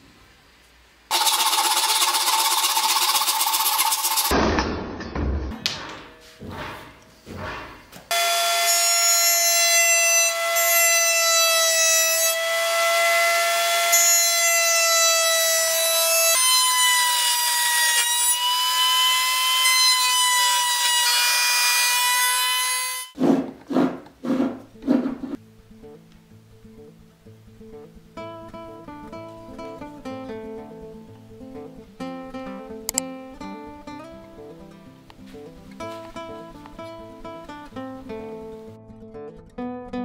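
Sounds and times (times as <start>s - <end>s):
wood router whining: 1.1s - 4.3s, 8.1s - 23.2s
sharp knocks: 4.3s - 7.9s.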